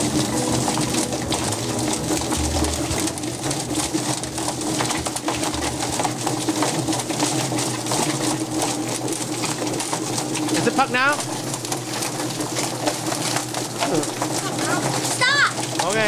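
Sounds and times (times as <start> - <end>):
electric motor humming: 0.0 - 16.0.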